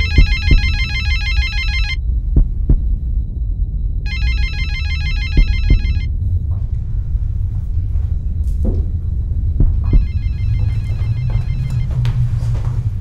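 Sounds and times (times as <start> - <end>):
electronic phone ringtone chirping: 0.0 - 2.0, 4.1 - 6.1, 9.9 - 11.9
deep rumbling drone: 0.0 - 13.0.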